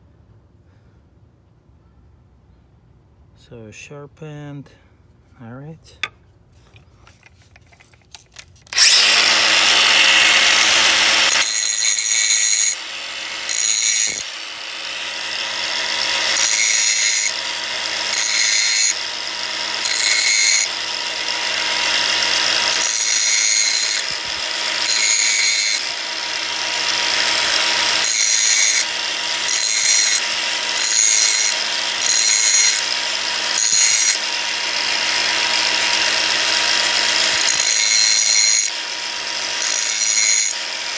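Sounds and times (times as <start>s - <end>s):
drill bit grinding: 8.6s - 40.9s
motor whine: 8.7s - 40.9s.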